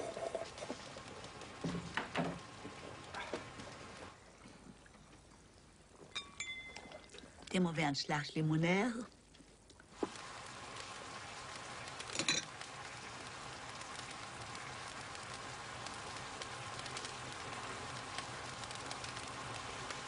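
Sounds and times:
soft crackling hiss: 0.0s - 20.0s
metal spoon clinking on dish: 6.2s - 6.8s.

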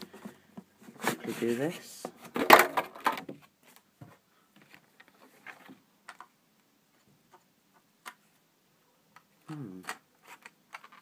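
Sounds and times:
faint clicks and taps: 3.7s - 8.2s.

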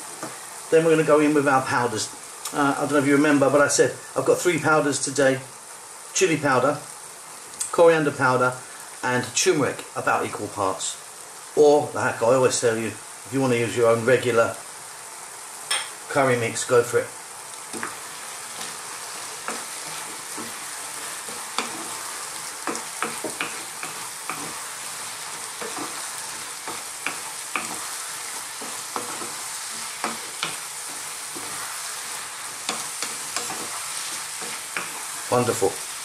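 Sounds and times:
vegetables sizzling in a pan: 0.0s - 36.0s
spatula scraping a pan: 17.7s - 36.0s.

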